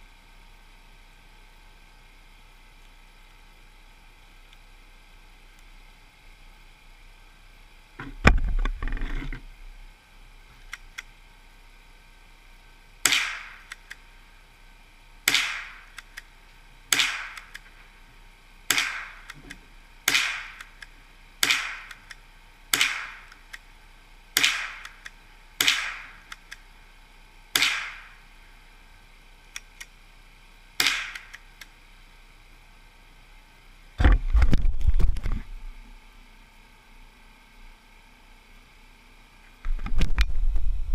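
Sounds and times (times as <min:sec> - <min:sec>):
rifle shots with echo: 0:13.0 - 0:13.7, 0:15.3 - 0:15.9, 0:16.9 - 0:17.4, 0:18.7 - 0:19.2, 0:20.1 - 0:20.6, 0:21.4 - 0:21.9, 0:22.7 - 0:23.3, 0:24.4 - 0:24.8, 0:25.6 - 0:26.2, 0:27.6 - 0:28.1.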